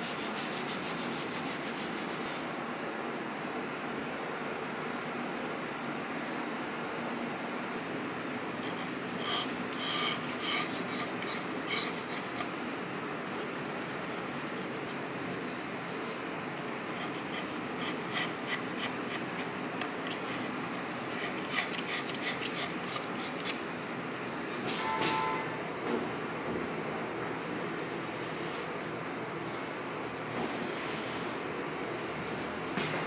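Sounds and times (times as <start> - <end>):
steady background hiss: 0.0 - 33.0
knife blade scraping clay: 8.6 - 12.6.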